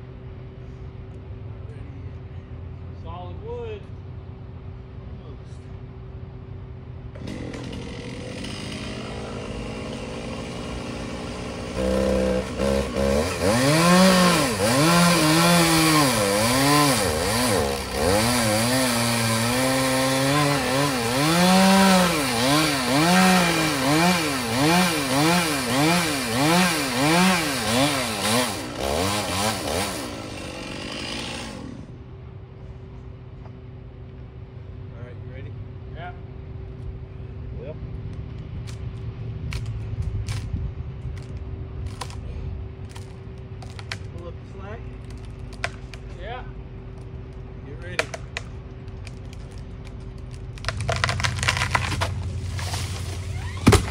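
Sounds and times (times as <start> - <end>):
steady engine hum: 0.0 - 53.9
chainsaw revving: 7.1 - 31.9.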